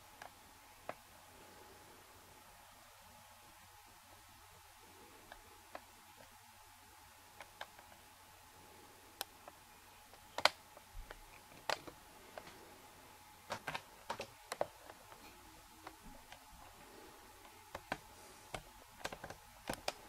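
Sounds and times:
faint steady hum: 0.0s - 20.0s
sharp clicks and taps: 9.2s - 12.6s, 13.5s - 16.5s, 17.4s - 20.0s.

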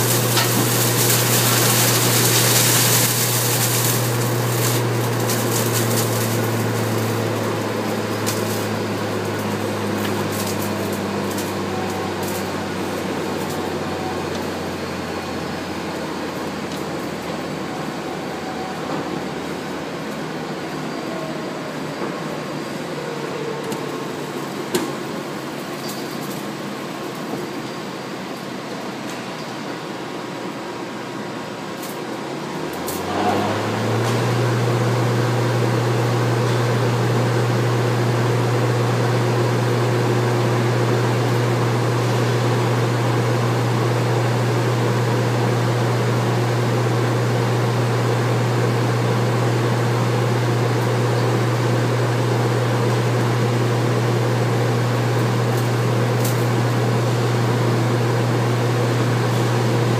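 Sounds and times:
machine motor humming: 0.0s - 25.7s.

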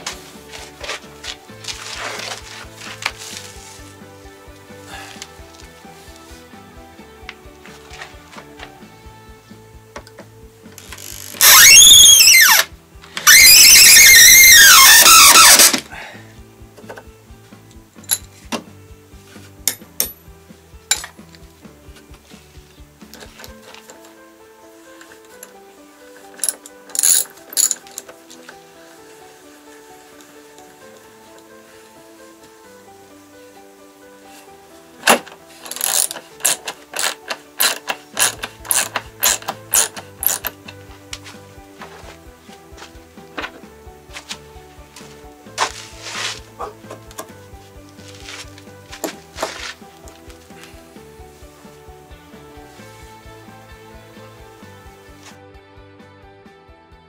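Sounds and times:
electric drill whining: 10.8s - 15.8s
ratchet wrench clicking: 35.6s - 40.6s.

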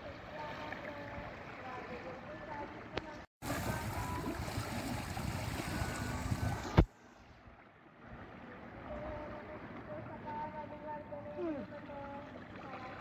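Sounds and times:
boat and water noise: 0.0s - 13.0s.

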